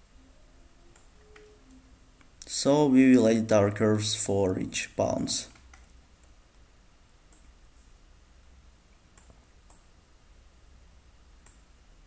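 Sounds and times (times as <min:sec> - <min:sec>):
low background hiss: 0:00.0 - 0:12.0
computer mouse clicks: 0:00.9 - 0:02.5, 0:05.5 - 0:06.4, 0:07.3 - 0:08.0, 0:09.1 - 0:09.9, 0:11.4 - 0:11.7.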